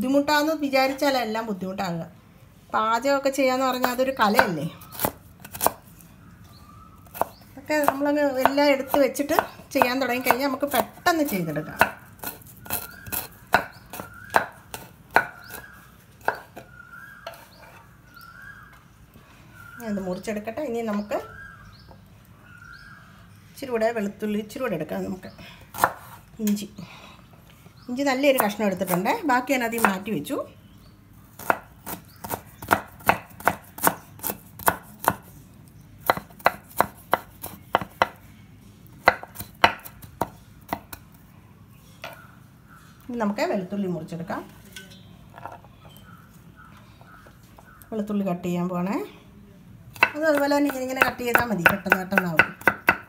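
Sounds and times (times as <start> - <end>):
knife chopping on wooden board: 11.8 - 16.6, 31.4 - 35.3, 36.0 - 38.2, 39.0 - 41.0, 50.0 - 53.0.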